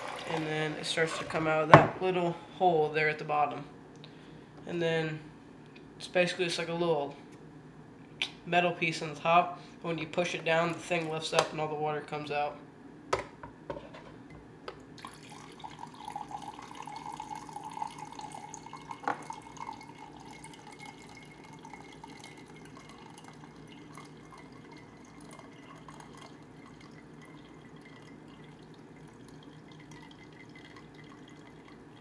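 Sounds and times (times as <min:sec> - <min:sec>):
hot water trickling into a mug: 0:00.0 - 0:01.6, 0:15.0 - 0:32.0.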